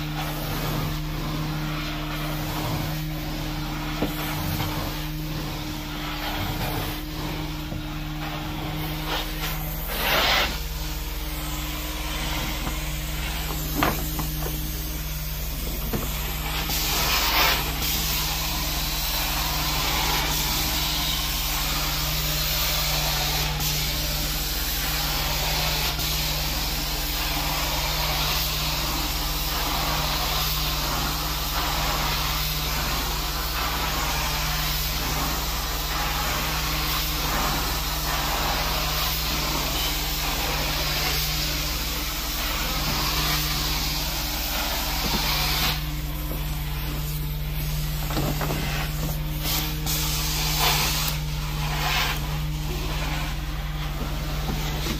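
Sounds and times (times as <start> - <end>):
carpet cleaning machine hum: 0.0 - 54.9
cleaning wand hissing: 0.0 - 54.9.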